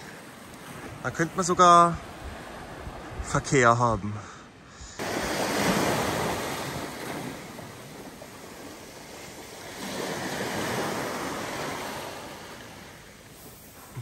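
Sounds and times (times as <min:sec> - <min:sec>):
waves washing on stony shore: 0:05.0 - 0:14.0.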